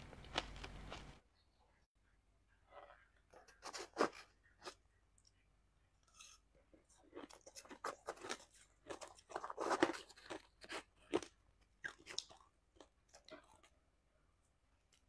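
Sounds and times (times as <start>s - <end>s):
ice being chewed and crunched: 6.1s - 13.7s.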